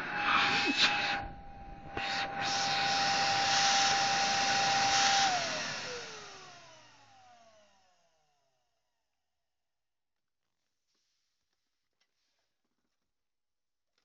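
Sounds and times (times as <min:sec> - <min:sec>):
vacuum cleaner motor whine: 0:00.0 - 0:08.7.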